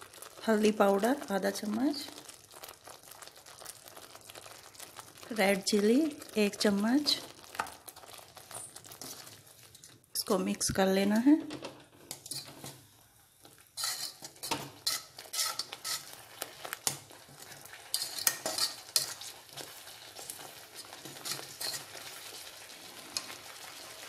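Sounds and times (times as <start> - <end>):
paste sizzling: 0.0 - 10.6, 12.1 - 24.0
metal spatula scraping pan: 12.0 - 12.9, 13.8 - 22.4.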